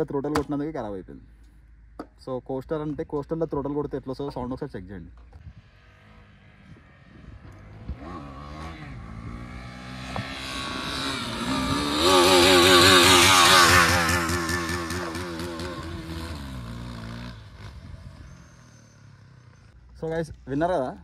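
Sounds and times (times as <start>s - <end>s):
motorcycle engine revving: 5.6s - 19.8s.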